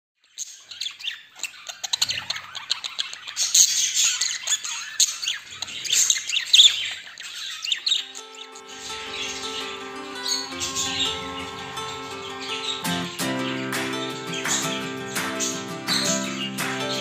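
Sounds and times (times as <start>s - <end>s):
budgerigars chattering: 0.3s - 17.0s
music: 8.0s - 17.0s.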